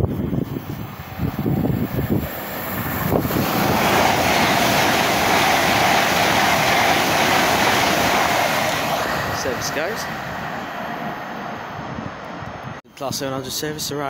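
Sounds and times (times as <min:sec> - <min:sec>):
train wheel and air rush: 0:00.0 - 0:12.8.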